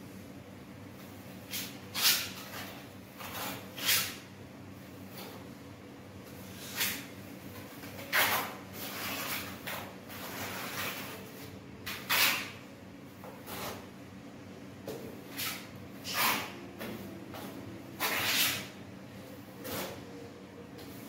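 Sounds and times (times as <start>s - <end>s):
trowel scraping on concrete wall: 1.5s - 4.2s, 8.1s - 11.2s, 11.8s - 12.6s, 18.0s - 18.8s.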